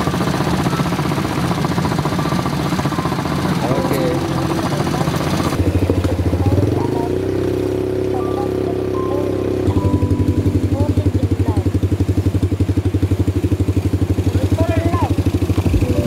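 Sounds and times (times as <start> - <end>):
quad bike engines puttering: 0.0 - 16.0.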